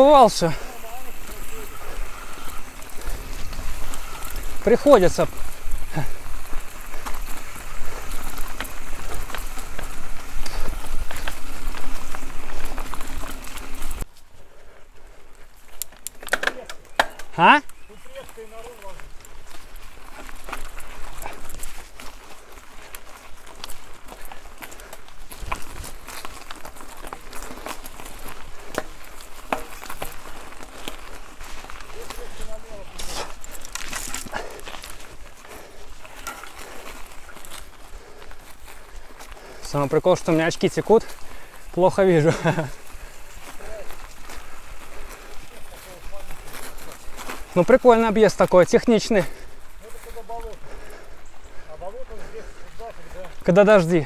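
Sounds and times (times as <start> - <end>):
bike rattling clicks: 0.0 - 14.0, 15.4 - 17.8, 18.7 - 39.6.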